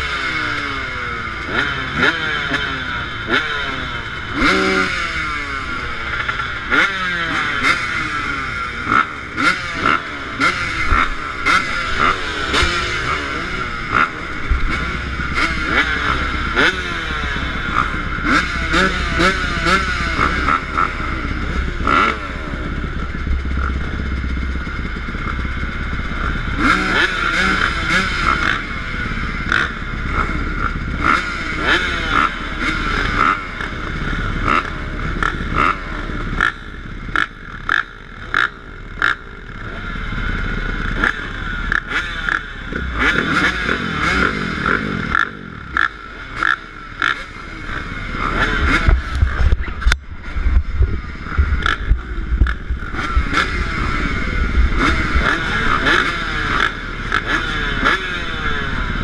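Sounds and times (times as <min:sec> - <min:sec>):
dirt bike engines revving: 0:00.0 - 0:59.0.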